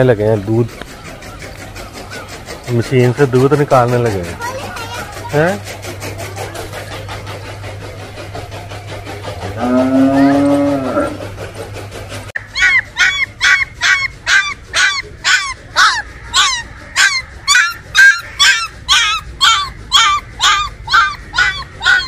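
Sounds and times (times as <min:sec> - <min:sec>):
cow mooing: 0:09.5 - 0:11.2
puppy whimpering yelps: 0:12.4 - 0:22.0.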